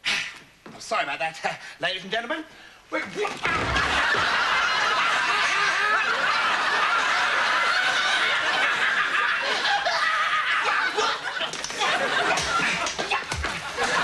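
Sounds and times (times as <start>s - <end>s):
audience laughing: 3.6s - 14.0s.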